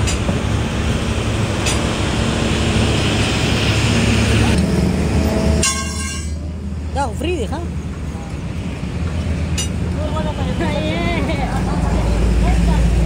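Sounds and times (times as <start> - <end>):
road traffic: 0.0 - 13.0
sharp metallic clink: 5.6 - 6.4.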